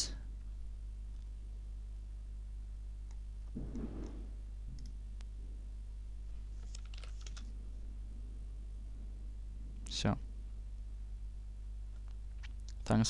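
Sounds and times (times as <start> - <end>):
steady low hum: 0.0 - 13.0
soft low thump: 3.6 - 4.8.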